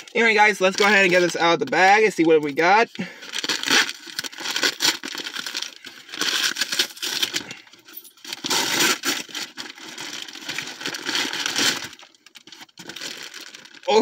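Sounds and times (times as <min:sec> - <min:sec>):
bag crinkling and rustling: 0:00.0 - 0:14.0.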